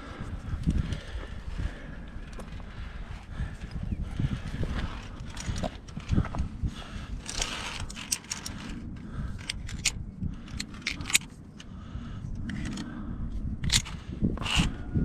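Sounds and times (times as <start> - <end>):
carabiners clicking on steel cable: 4.8 - 6.4, 7.0 - 11.7, 12.4 - 13.0, 13.6 - 14.8.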